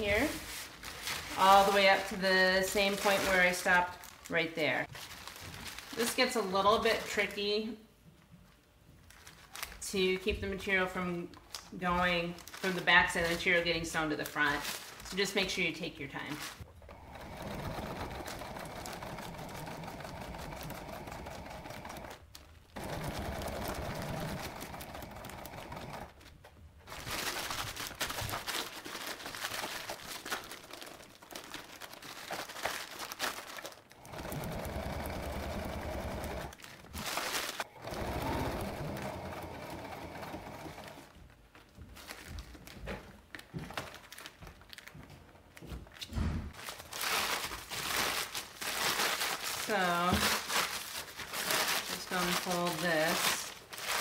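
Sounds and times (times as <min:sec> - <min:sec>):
stiff fabric crinkling: 0:00.0 - 0:07.4, 0:11.5 - 0:15.5, 0:16.1 - 0:54.0
sewing machine stitching: 0:16.8 - 0:26.2, 0:34.0 - 0:36.6, 0:37.6 - 0:41.2.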